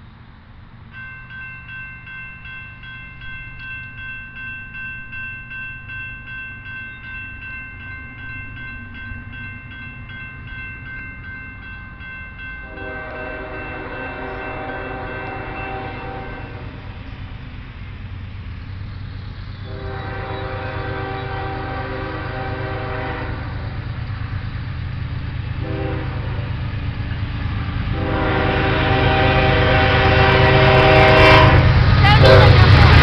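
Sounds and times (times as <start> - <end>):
diesel train rumble: 0.0 - 33.0
crossing warning bell ringing: 0.8 - 33.0
locomotive horn: 12.6 - 16.9, 19.6 - 23.8, 25.6 - 26.6, 27.9 - 33.0.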